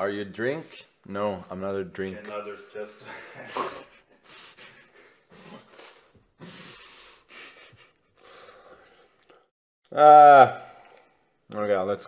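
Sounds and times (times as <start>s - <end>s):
man snickering through nose: 3.4s - 5.7s.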